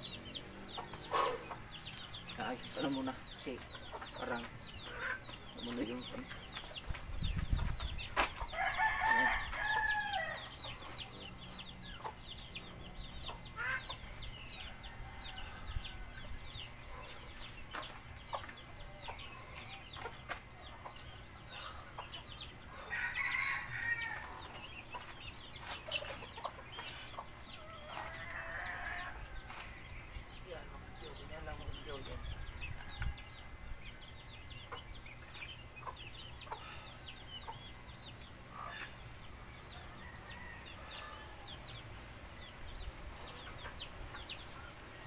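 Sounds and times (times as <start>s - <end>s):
rooster crowing: 8.6s - 10.5s, 22.8s - 24.4s, 27.6s - 29.4s.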